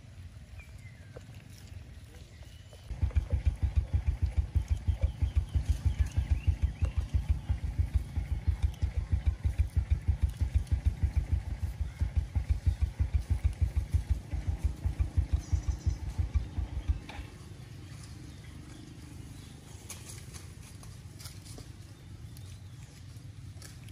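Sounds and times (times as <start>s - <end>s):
engine idling: 0.0s - 23.9s.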